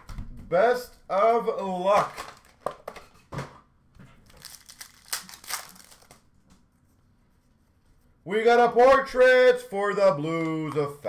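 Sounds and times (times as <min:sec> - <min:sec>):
card pack wrapper crinkling: 0:01.9 - 0:02.9, 0:04.2 - 0:06.3.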